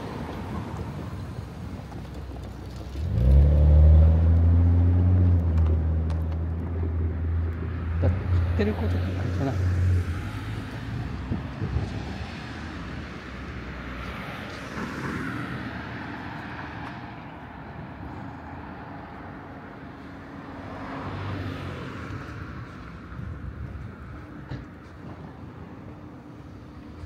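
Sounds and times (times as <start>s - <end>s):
passing vehicles: 0.0s - 27.0s.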